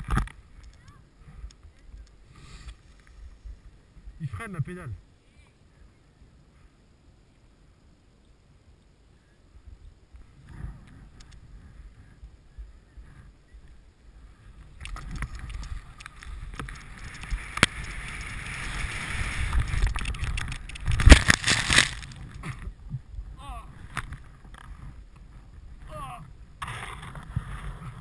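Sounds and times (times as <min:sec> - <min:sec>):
skis scraping over snow: 0:14.2 - 0:22.8, 0:26.5 - 0:28.0
loud thumps: 0:19.6 - 0:22.6.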